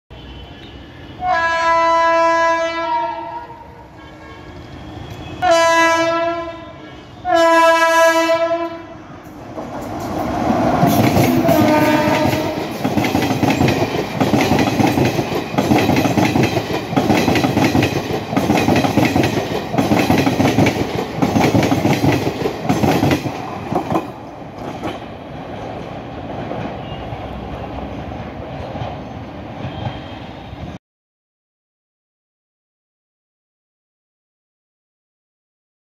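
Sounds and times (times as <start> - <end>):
locomotive horn blasts: 0.2 - 9.0, 11.3 - 12.7
train wheels clattering on track: 9.2 - 30.5.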